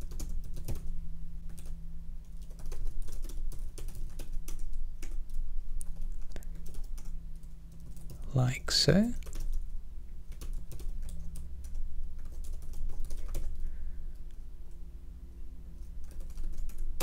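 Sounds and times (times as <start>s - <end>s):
typing on computer keyboard: 0.0s - 0.9s, 1.5s - 8.2s, 9.2s - 9.6s, 10.3s - 13.6s, 16.0s - 17.0s
steady low hum: 0.0s - 17.0s.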